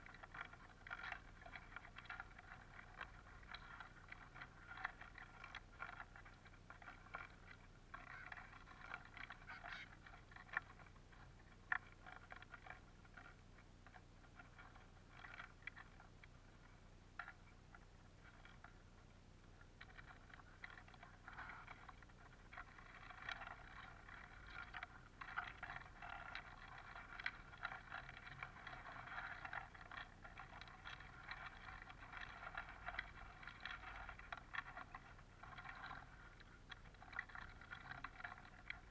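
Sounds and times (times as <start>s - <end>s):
birds pecking through seeds: 0.0s - 38.9s.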